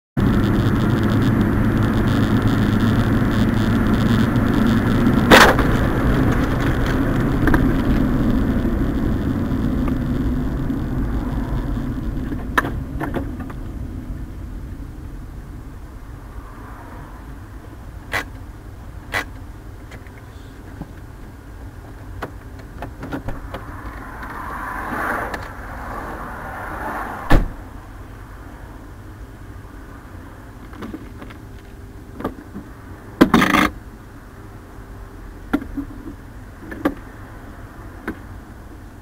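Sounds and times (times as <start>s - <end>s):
road and engine noise in car: 0.2s - 39.0s
sharp loud bang: 5.2s - 6.3s.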